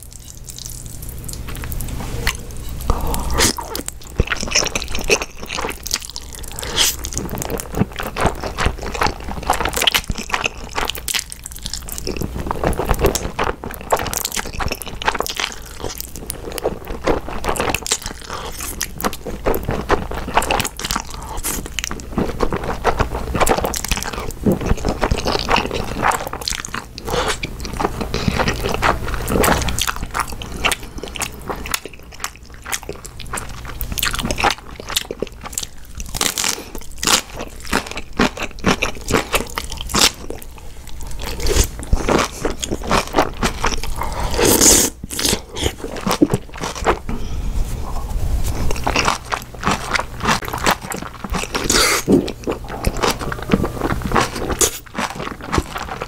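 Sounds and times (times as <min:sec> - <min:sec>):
wet crunchy chewing: 0:00.0 - 0:47.1, 0:48.4 - 0:56.0
steady low hum: 0:00.0 - 0:56.0
slurping noodles: 0:43.8 - 0:46.4.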